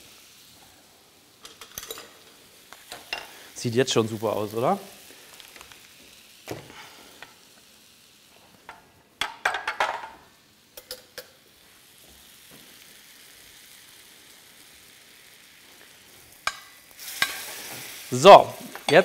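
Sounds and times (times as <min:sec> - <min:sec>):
butter sizzling in a pan: 0:00.0 - 0:19.0
dish and utensils clinking: 0:01.4 - 0:02.3.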